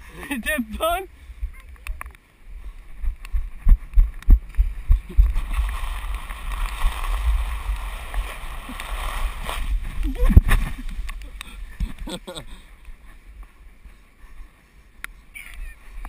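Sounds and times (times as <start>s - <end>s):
wind rumble: 1.2s - 16.0s
body sliding on wet plastic: 5.2s - 11.0s.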